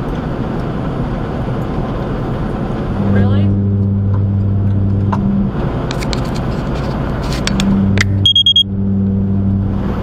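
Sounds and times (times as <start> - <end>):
truck engine and road drone: 0.0 - 10.0
high electronic beeps: 8.2 - 8.7.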